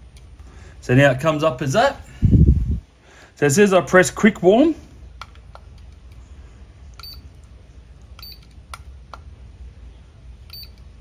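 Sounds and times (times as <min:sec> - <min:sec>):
short high beeps: 0:10.5 - 0:10.8.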